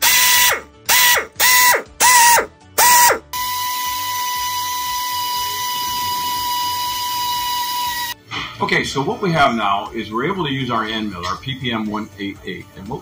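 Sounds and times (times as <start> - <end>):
power drill running: 0.0 - 8.2.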